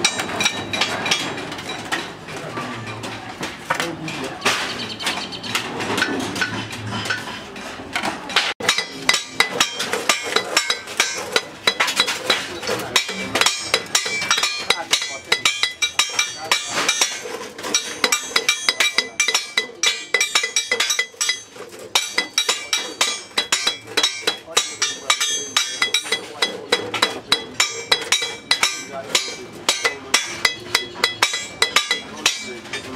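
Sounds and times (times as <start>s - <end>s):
hammer on sheet metal: 8.0s - 32.9s.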